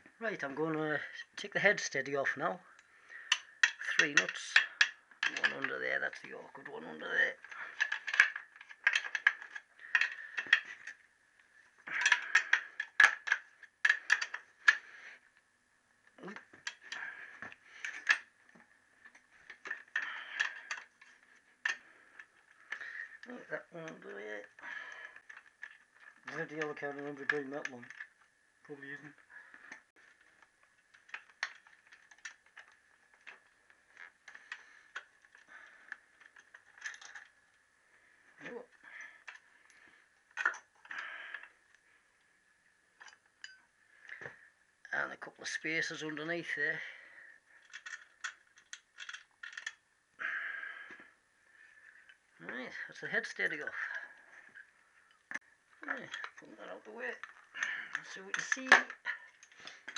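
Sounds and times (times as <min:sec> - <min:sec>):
spanner clinking on metal: 0:03.2 - 0:05.8, 0:43.0 - 0:43.6, 0:57.2 - 0:59.9.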